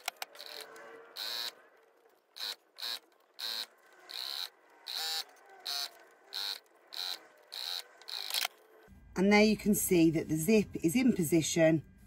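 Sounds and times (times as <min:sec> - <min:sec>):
sewing machine whirring: 0:00.0 - 0:08.9.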